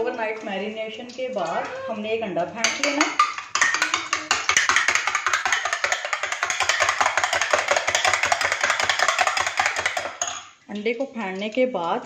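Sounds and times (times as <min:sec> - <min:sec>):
spoon clattering against bowl: 0:02.6 - 0:10.6.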